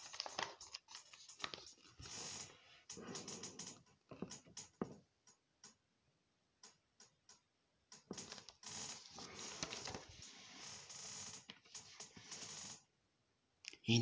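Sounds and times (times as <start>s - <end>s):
paper rustling: 0.0s - 3.3s, 8.1s - 12.6s.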